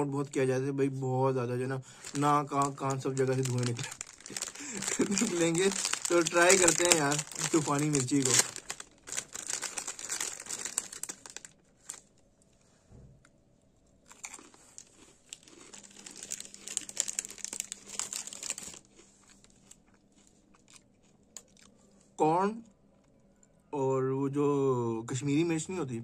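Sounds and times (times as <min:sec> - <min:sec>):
plastic snack packet crinkling: 0:01.9 - 0:12.2, 0:14.1 - 0:19.8
crunchy snack being chewed: 0:02.0 - 0:12.0, 0:14.1 - 0:21.9.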